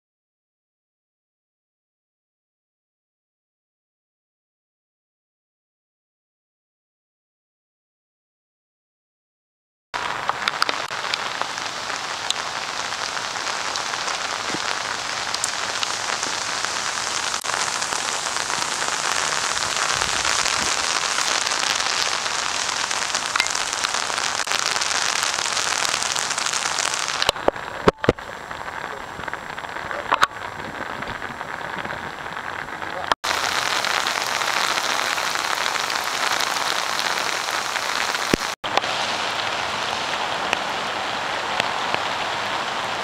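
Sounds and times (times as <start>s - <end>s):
heavy rain falling: 10.0s - 43.0s.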